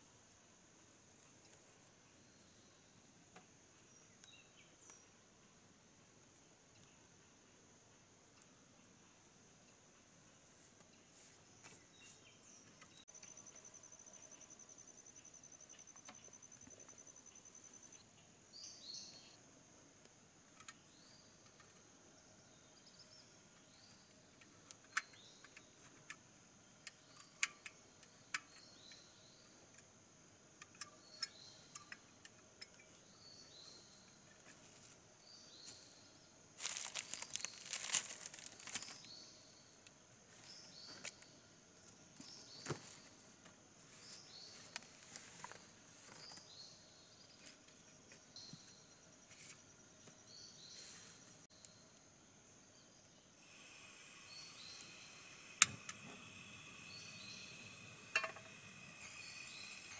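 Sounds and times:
high insect drone: 11.2s - 59.9s
plastic packaging crinkling: 36.6s - 39.1s
small objects clicking: 36.6s - 39.1s.

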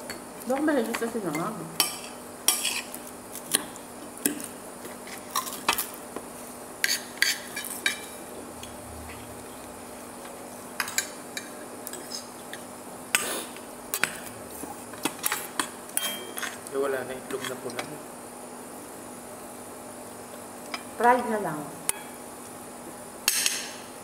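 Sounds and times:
cutlery clinking on a plate: 15.0s - 16.6s.

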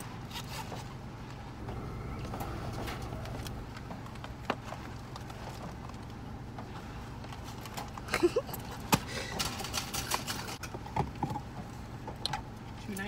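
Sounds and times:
car hum: 0.0s - 13.0s
women laughing: 8.1s - 9.3s.

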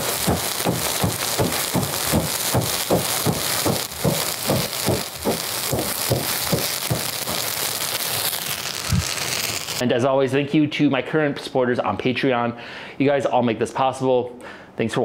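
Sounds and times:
fire crackling: 0.0s - 9.8s
pulsing rush of flame: 0.0s - 9.8s.

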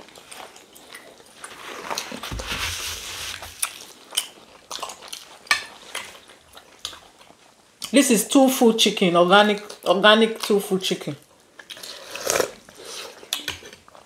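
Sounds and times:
chewing food: 0.0s - 2.4s, 3.5s - 8.0s, 11.2s - 14.0s.

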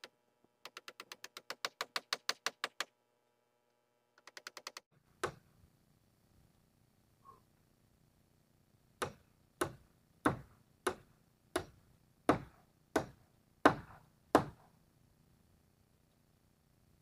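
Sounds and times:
hammer striking nail into metal roofing: 0.6s - 2.9s, 4.2s - 5.5s, 9.0s - 14.7s.

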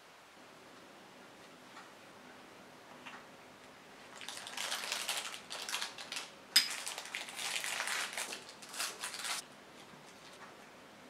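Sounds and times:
plastic bag crinkling: 4.2s - 9.4s.

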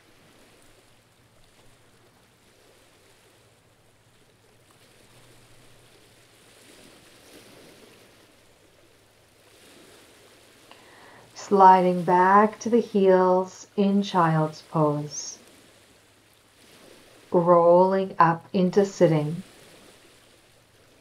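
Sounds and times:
small waves lapping on rock: 0.0s - 11.3s, 15.4s - 17.3s, 19.4s - 21.0s.

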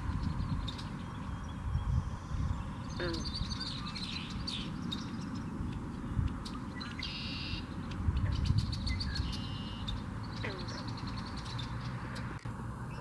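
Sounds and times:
wind buffeting microphone: 0.0s - 12.4s.

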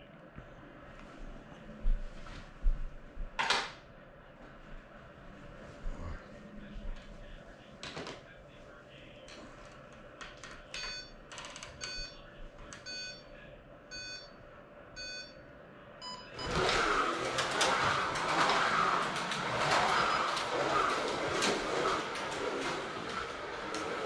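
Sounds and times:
slot cars whirring: 16.3s - 24.0s.

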